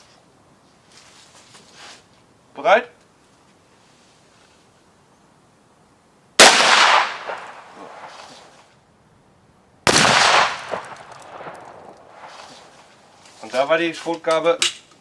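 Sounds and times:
shotgun blasts: 0:06.4 - 0:08.4, 0:09.9 - 0:12.6.

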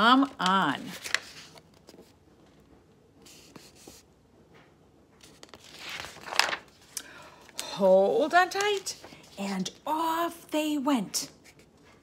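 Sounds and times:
paper book rustling: 0:00.1 - 0:04.1, 0:05.2 - 0:09.8.

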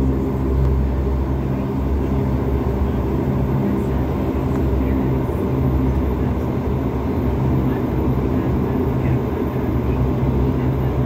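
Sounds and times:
low steady hum: 0:00.0 - 0:11.0
turboprop engines droning: 0:00.0 - 0:11.0.

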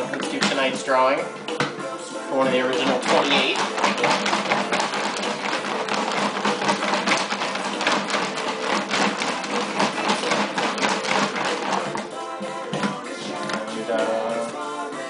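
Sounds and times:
paper tickets rattling in plastic tote: 0:02.8 - 0:12.1.

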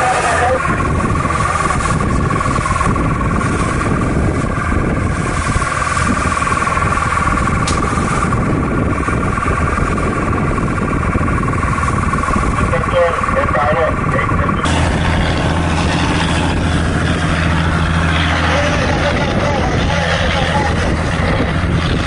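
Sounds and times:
boat engine droning with whine: 0:00.0 - 0:22.0.

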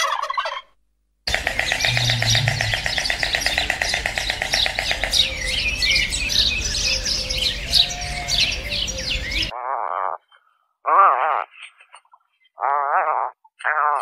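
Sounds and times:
birds chirping and trilling: 0:01.3 - 0:10.7.

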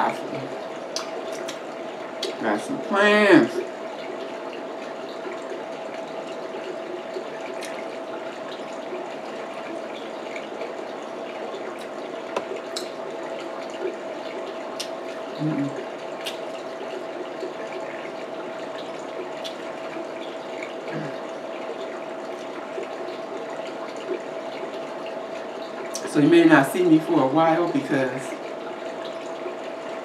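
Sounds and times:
faint hum: 0:00.0 - 0:30.0
person murmuring mm: 0:15.4 - 0:15.8, 0:20.9 - 0:21.2.

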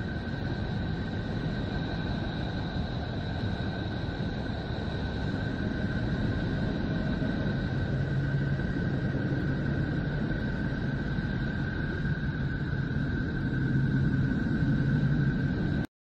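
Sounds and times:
low hum: 0:00.0 - 0:15.9
rumbling drone of noise: 0:00.0 - 0:15.9.

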